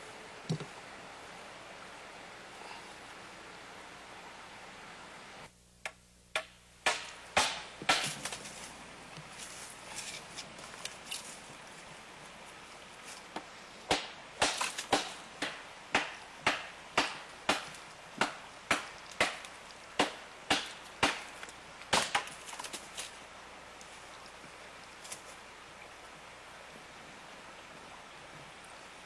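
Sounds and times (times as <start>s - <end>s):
wood being chopped: 6.3s - 8.5s, 13.4s - 23.1s.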